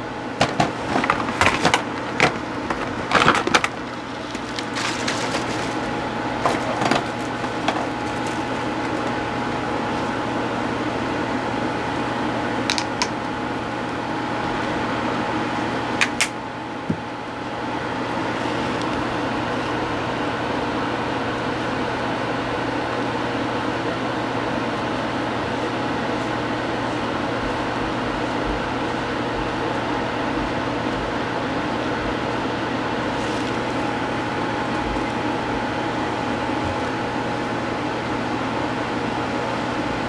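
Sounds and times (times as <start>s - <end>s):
steady background hum: 0.0s - 40.0s.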